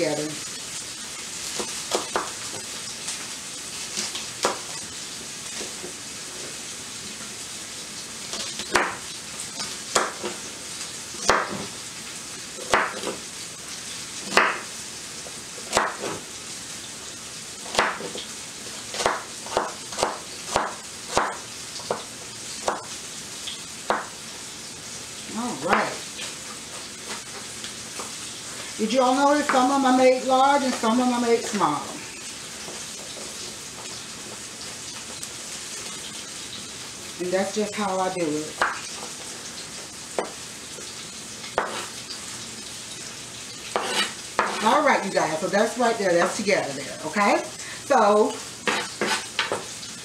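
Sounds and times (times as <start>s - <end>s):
meat sizzling in a skillet: 0.0s - 50.0s
knife chopping on cutting board: 8.7s - 9.0s, 9.9s - 10.4s, 11.2s - 11.7s, 12.7s - 13.2s, 14.3s - 14.7s, 15.7s - 16.2s, 17.7s - 18.2s, 18.9s - 22.9s, 23.9s - 24.1s, 41.6s - 41.9s, 43.7s - 44.7s, 48.6s - 49.7s.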